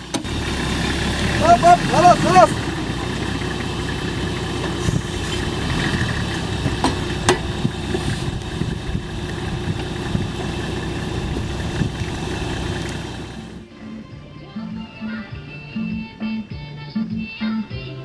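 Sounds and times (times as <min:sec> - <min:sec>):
suv engine idling: 0:00.0 - 0:13.7.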